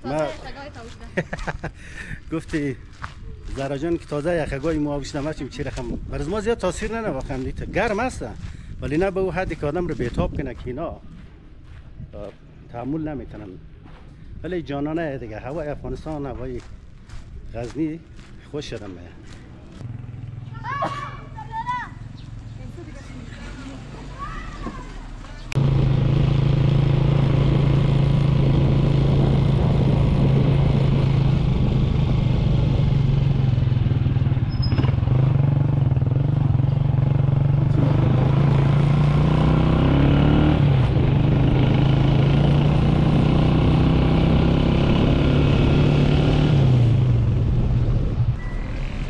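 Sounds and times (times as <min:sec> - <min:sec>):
road noise: 0:00.0 - 0:49.0
vehicle engine running: 0:25.2 - 0:49.0.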